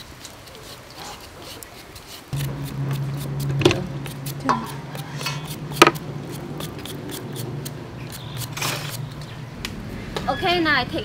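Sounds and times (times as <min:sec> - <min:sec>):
low steady hum: 0:02.4 - 0:10.1.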